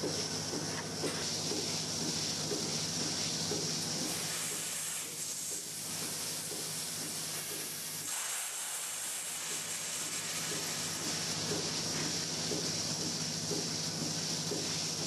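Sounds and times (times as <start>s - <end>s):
hissing water spray: 0.0s - 15.0s
low machine hum: 10.0s - 15.0s.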